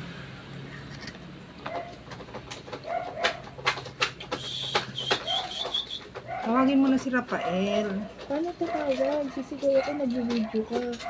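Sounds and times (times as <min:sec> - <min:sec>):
bird calls: 0:04.3 - 0:06.4.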